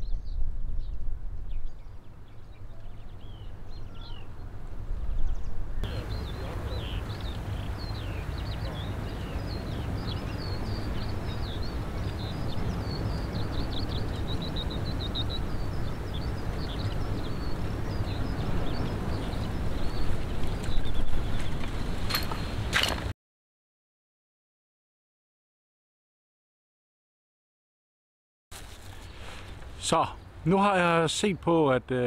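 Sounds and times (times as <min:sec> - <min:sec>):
small birds chirping: 0:00.0 - 0:22.7
wind rumble on microphone: 0:00.0 - 0:23.1.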